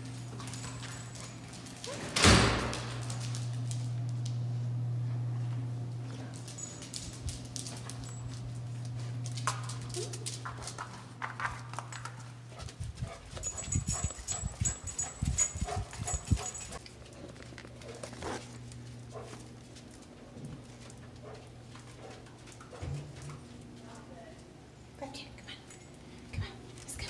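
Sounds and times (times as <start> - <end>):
dog collar jingling: 0.0 - 3.9, 6.1 - 10.8, 13.0 - 16.9, 25.6 - 26.2
steady low hum: 0.0 - 27.0
dog claws clicking on hard floor: 6.2 - 14.4.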